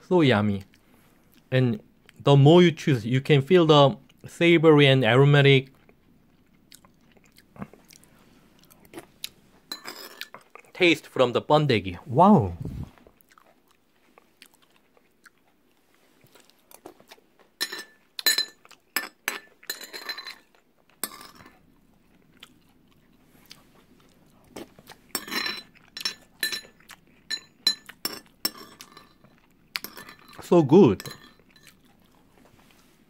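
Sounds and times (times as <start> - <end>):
crunchy chewing: 5.6 - 9.4, 13.0 - 17.6, 21.6 - 27.3, 31.4 - 33.0
metal spoon clinking on ceramic bowl: 9.7 - 10.3, 17.6 - 20.4, 25.1 - 29.2, 29.8 - 31.8.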